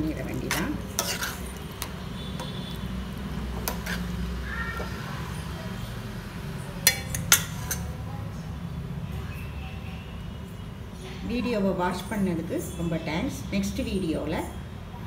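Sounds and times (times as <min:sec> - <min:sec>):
metal ladle clinking on pan: 0:00.3 - 0:02.8, 0:03.6 - 0:04.1, 0:06.8 - 0:07.9.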